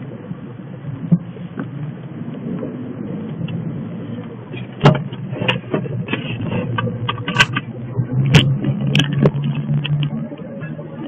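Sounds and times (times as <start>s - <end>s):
car engine and road hum: 0.0s - 11.0s
sharp rattles and knocks: 4.5s - 10.3s.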